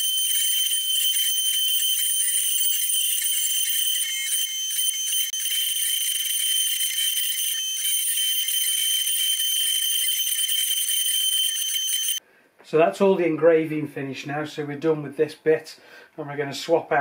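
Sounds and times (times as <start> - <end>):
router spindle whining: 0.0 - 12.2.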